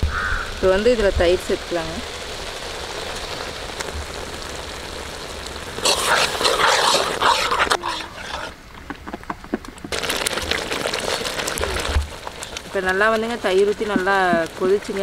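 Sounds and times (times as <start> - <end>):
curd sizzling in hot oil: 0.0 - 8.6, 9.9 - 15.0
metal ladle stirring and scraping: 5.8 - 8.6.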